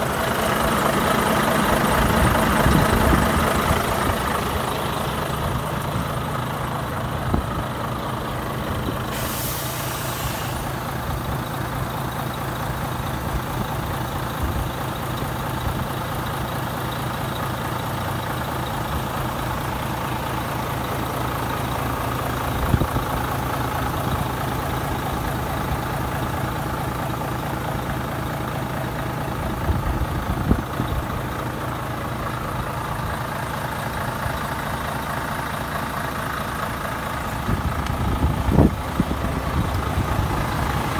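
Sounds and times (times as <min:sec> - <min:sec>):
diesel truck engine idling: 0:00.0 - 0:40.9
air hiss: 0:09.0 - 0:10.8.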